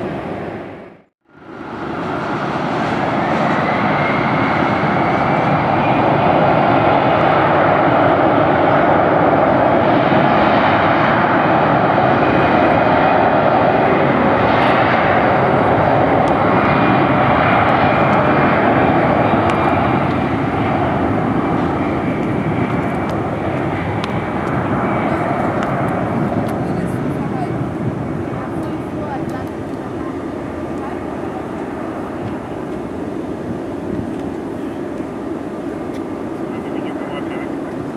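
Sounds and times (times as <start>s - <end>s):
jet engines roaring: 0.0s - 37.9s
faint engine whine: 13.3s - 37.9s.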